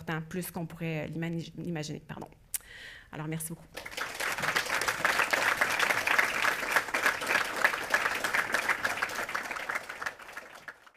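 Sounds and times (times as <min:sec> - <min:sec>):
audience applauding: 0:03.7 - 0:10.9.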